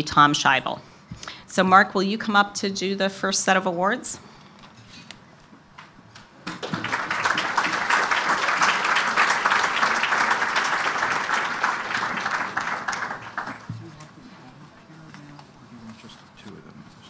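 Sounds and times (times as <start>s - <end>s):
audience applauding: 6.5s - 13.9s.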